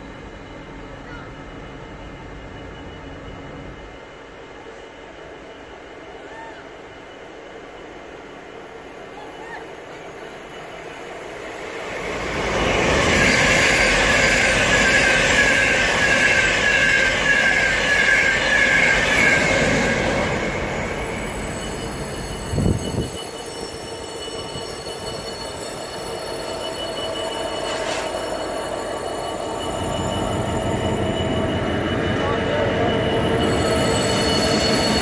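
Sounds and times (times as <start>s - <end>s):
express train passing: 0.0s - 35.0s
high wavering whine: 10.2s - 35.0s.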